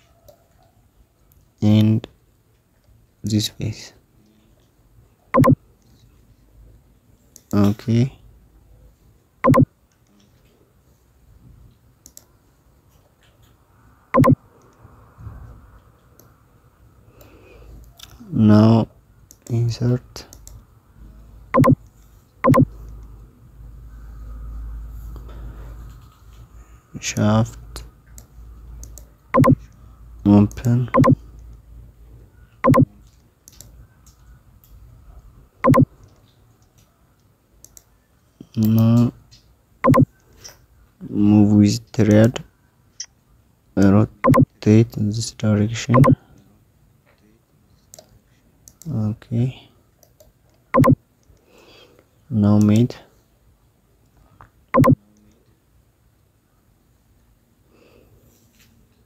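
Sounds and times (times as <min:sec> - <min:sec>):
computer mouse clicks: 0:05.4 - 0:05.6, 0:12.0 - 0:12.3, 0:21.6 - 0:23.0, 0:28.2 - 0:29.7, 0:30.6 - 0:31.2, 0:35.6 - 0:36.8, 0:37.6 - 0:37.9, 0:50.0 - 0:51.4, 0:54.8 - 0:55.0.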